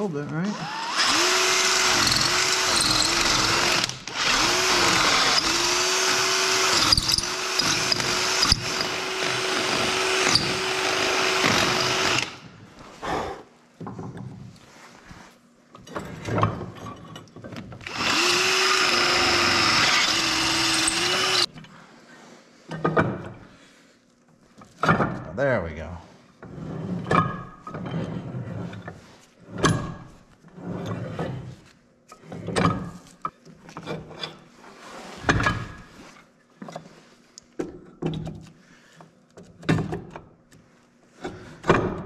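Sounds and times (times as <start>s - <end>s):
cordless drill drilling into wood: 0.5s - 12.4s, 17.8s - 21.5s.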